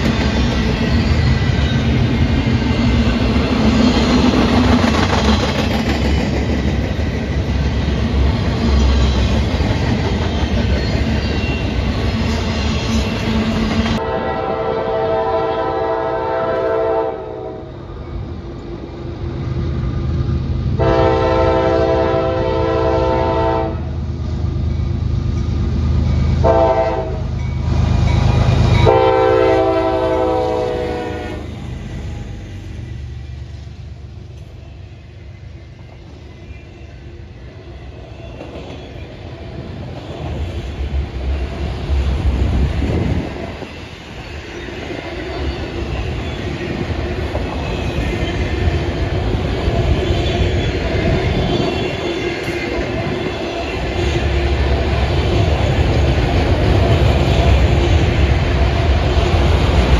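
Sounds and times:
train wheels clattering on rails: 0.0 - 14.0, 37.9 - 59.9
locomotive horn blasts: 14.0 - 17.7, 20.8 - 23.9, 26.4 - 27.3, 28.8 - 31.5.

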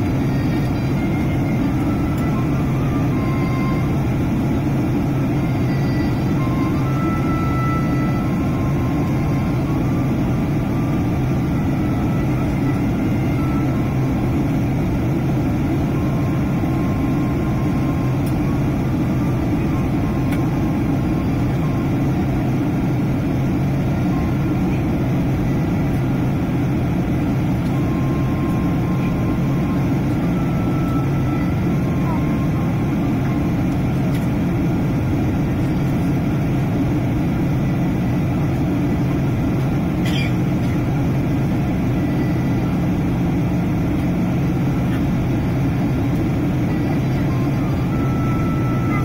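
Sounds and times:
airliner cabin drone: 0.0 - 49.0.

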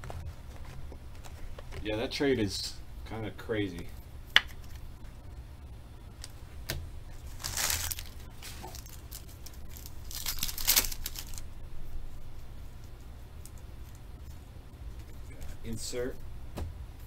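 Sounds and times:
foil wrappers tearing and crinkling: 7.2 - 11.4.

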